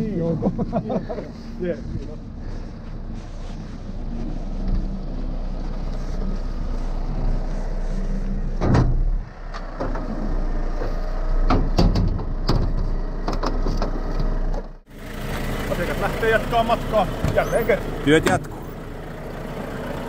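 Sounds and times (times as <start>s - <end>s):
diesel truck engine running: 0.0s - 20.0s
loud thump: 8.6s - 9.2s.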